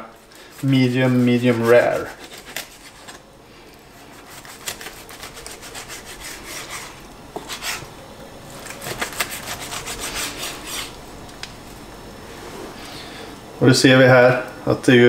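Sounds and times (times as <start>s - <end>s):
knife sawing through steak: 0.4s - 3.2s, 3.9s - 7.9s, 8.8s - 11.0s.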